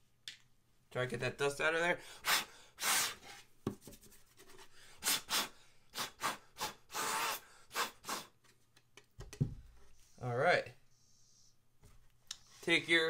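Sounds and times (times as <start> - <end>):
short puffs of breath: 2.0 - 3.4, 4.7 - 8.4.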